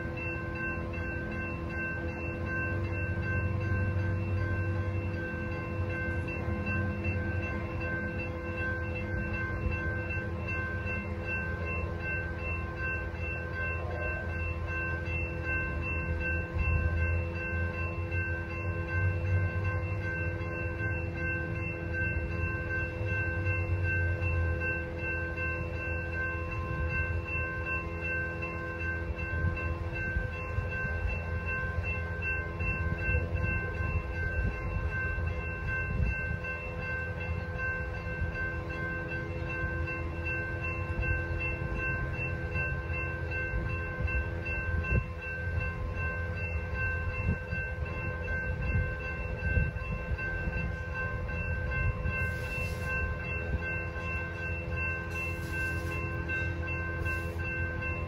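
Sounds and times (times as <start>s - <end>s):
railroad crossing bell ringing: 0.0s - 58.0s.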